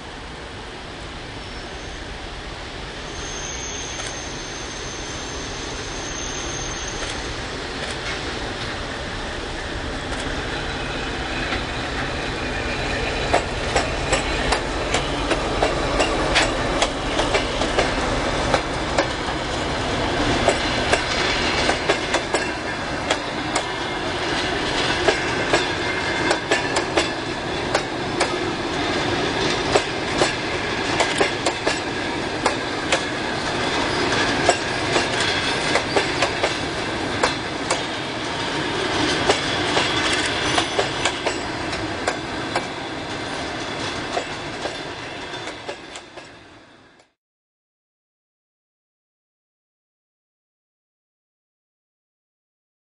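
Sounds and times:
train wheels clicking over rail joints: 6.9s - 8.8s, 10.0s - 46.4s.

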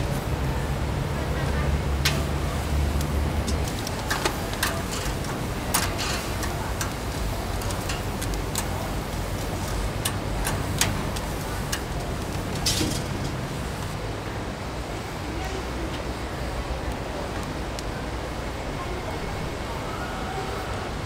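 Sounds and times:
sharp clicks and ticks: 2.9s - 14.0s.

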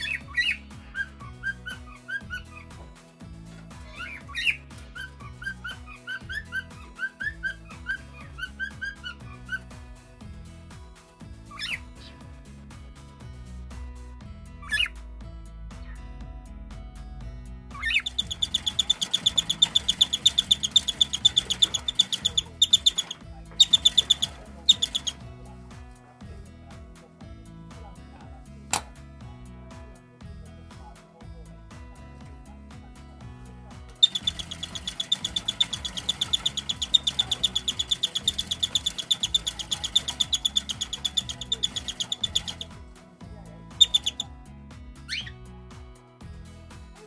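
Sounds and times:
bird high chirps: 0.0s - 2.8s, 3.9s - 9.7s, 11.5s - 12.2s, 14.6s - 15.0s, 17.8s - 25.2s, 34.0s - 42.7s, 43.8s - 44.3s, 45.1s - 45.4s
background music: 0.0s - 47.0s.

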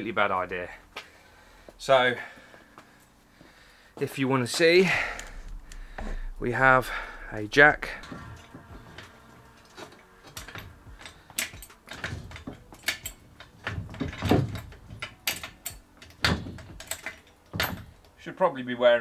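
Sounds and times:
heavy thumps: 5.0s - 9.1s.

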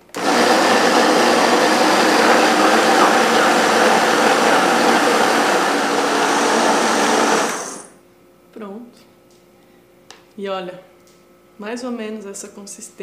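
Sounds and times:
blender motor running: 0.0s - 8.0s.

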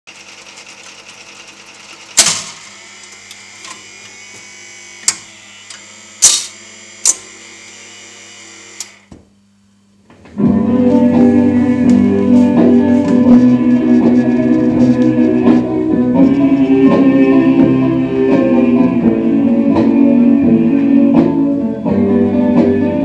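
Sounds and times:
jukebox motor hum and gear whir: 0.1s - 9.0s
record playing: 10.4s - 22.0s.

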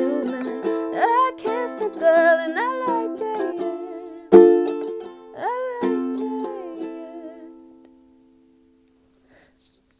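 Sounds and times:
ukulele strumming: 0.0s - 8.8s.

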